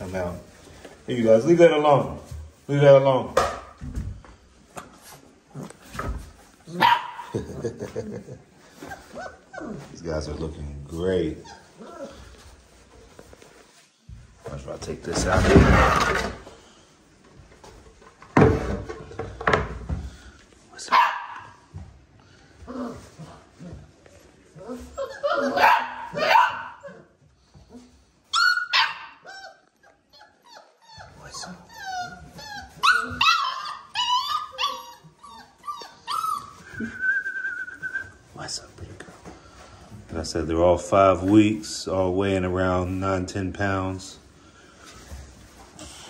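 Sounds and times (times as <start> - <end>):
puppies whining and yipping: 8.6 - 10.0, 11.3 - 12.8, 24.5 - 38.2.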